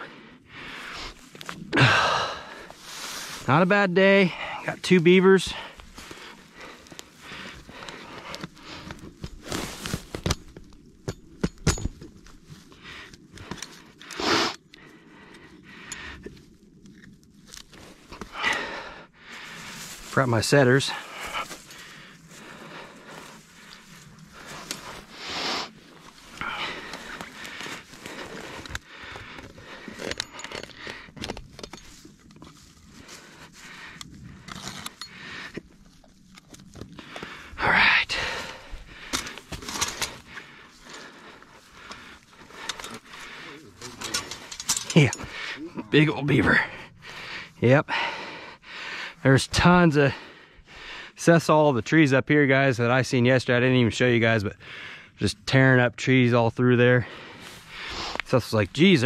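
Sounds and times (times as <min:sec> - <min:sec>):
dry grass rustling: 0:00.4 - 0:46.3, 0:57.0 - 0:59.0
metal wire clinking and scraping: 0:26.1 - 0:32.8, 0:39.1 - 0:40.4, 0:42.4 - 0:45.5.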